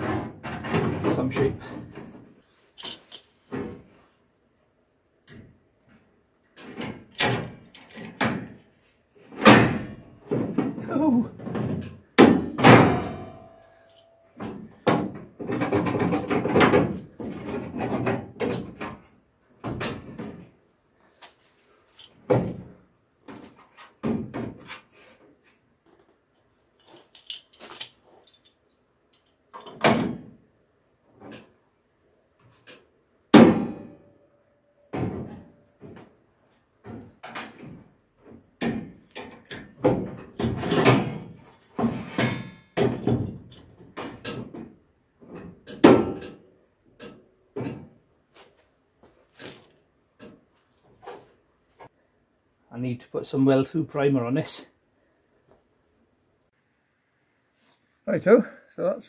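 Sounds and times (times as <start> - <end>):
metal knocks and clatters: 9.4 - 20.6, 36.8 - 48.0.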